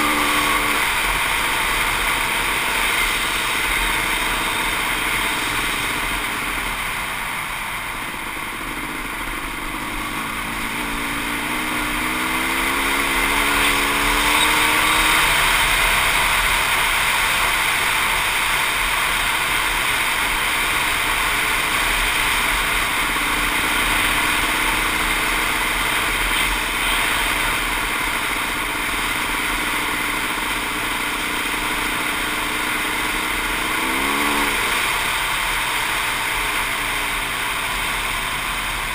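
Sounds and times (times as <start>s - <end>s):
dirt bike engine running: 0.0s - 38.9s
wind and tyres on gravel: 0.0s - 38.9s.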